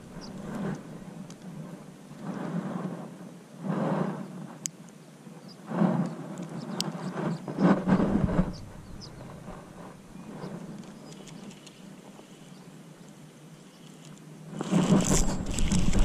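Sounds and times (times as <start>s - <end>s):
wind gusting over microphone: 0.0s - 4.7s, 5.4s - 11.5s, 14.5s - 16.0s.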